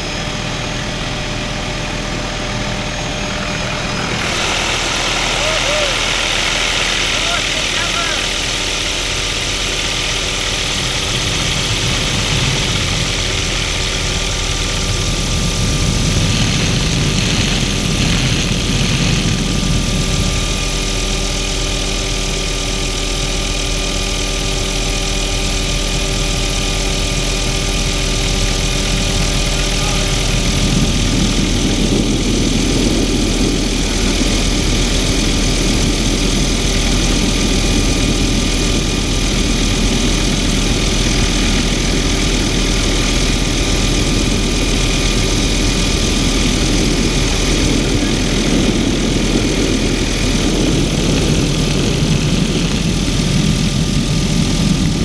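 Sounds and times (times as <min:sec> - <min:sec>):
helicopter engine and rotor: 0:00.0 - 0:55.0
wind rushing past microphone: 0:27.9 - 0:55.0.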